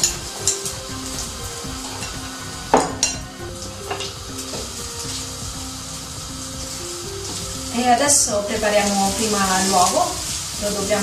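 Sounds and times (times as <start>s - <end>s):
eggs sizzling in hot oil: 0.0s - 11.0s
utensil knocking on pan: 2.7s - 3.2s.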